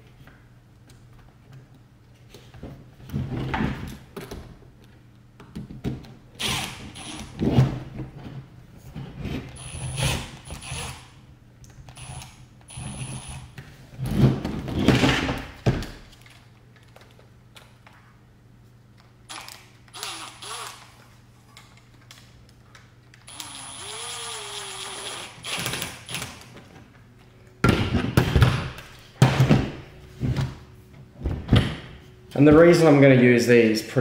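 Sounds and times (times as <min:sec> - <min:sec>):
electric screwdriver running: 0:09.6 - 0:11.0, 0:19.3 - 0:20.9, 0:23.3 - 0:26.3.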